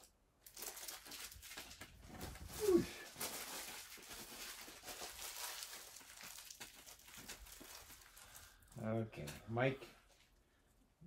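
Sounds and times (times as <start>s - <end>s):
foil wrappers crinkling: 0.0s - 8.8s.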